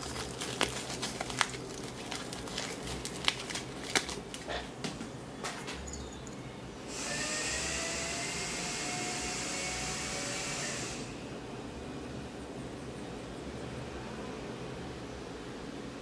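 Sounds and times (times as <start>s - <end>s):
small motor whirring: 6.9s - 11.1s.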